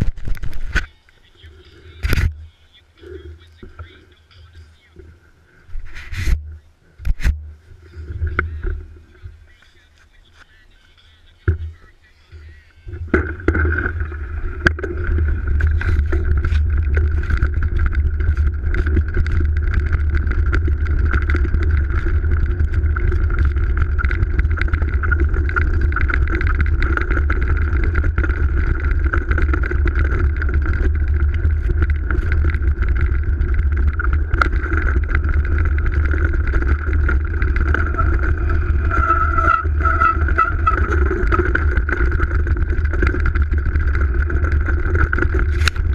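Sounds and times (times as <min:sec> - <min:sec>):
wind and tyre rumble: 0:00.0 - 0:10.7, 0:11.4 - 0:45.9
bike knocks and rattles: 0:13.0 - 0:45.9.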